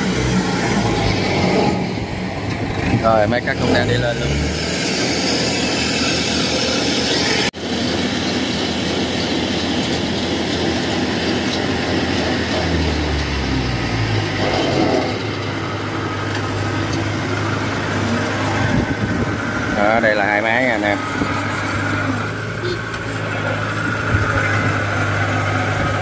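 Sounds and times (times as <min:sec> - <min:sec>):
combine harvester diesel engine: 0:00.0 - 0:26.0.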